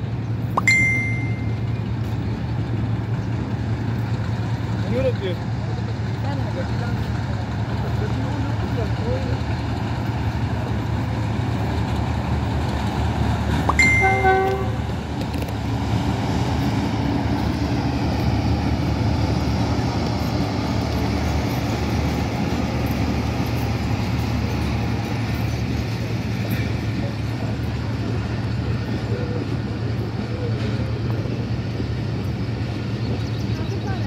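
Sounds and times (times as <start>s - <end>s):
diesel locomotive engine rumble: 0.0s - 34.0s
train coaches rolling by: 0.0s - 34.0s
train horn blast: 13.8s - 14.9s.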